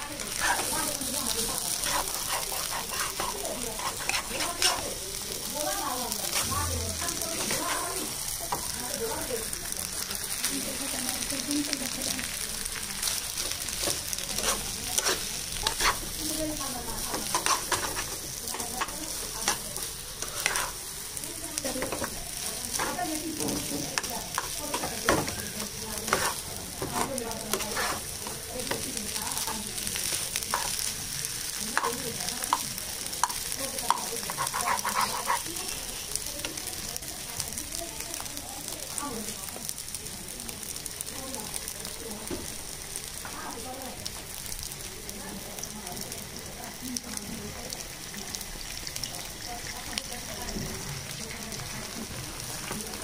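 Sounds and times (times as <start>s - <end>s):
spatula scraping a pan: 0.0s - 5.0s, 6.2s - 8.8s, 13.0s - 36.2s
mash sizzling: 0.0s - 53.0s.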